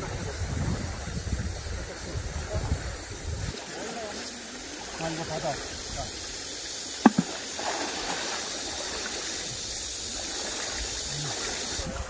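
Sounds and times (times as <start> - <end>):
stream water splashing: 0.0 - 12.0
sharp knock: 7.0 - 7.3.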